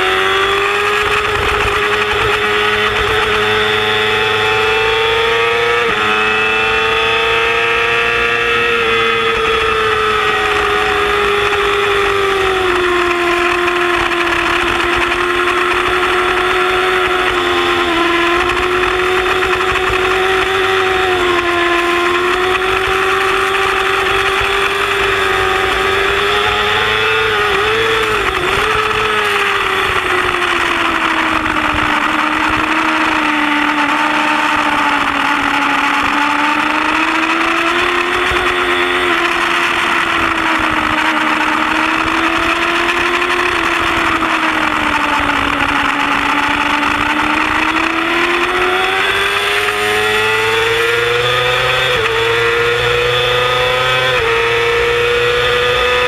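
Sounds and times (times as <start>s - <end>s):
motorcycle engine revving high: 0.0s - 56.0s
wind and road noise: 0.0s - 56.0s.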